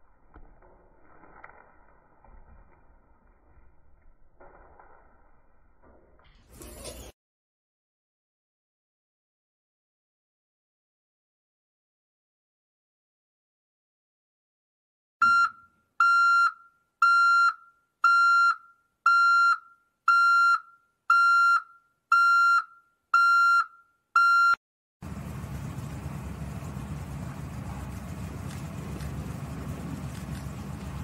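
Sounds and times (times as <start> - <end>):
low rushing noise: 25.0 - 31.0.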